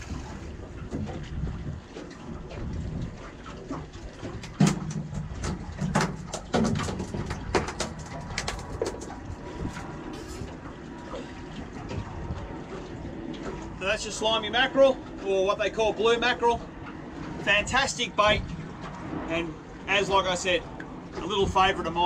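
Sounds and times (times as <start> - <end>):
water noise: 0.0 - 22.0
wind: 0.0 - 22.0
fish slapping against deck: 4.2 - 10.5.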